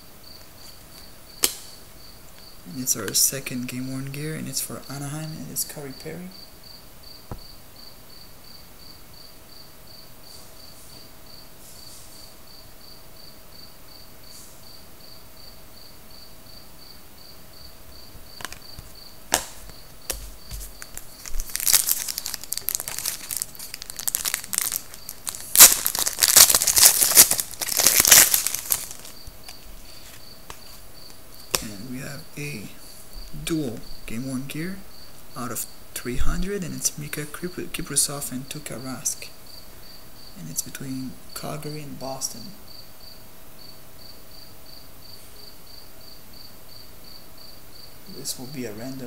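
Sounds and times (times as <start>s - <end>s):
cards clicking on table: 18.4s - 22.5s, 31.5s - 31.7s
wrapper tearing and crinkling: 20.2s - 29.6s.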